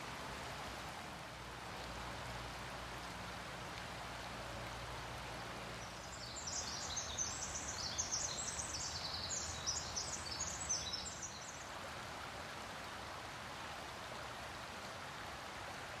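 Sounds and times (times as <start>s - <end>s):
creek trickling over stones: 0.0s - 16.0s
songbird singing: 5.7s - 11.6s.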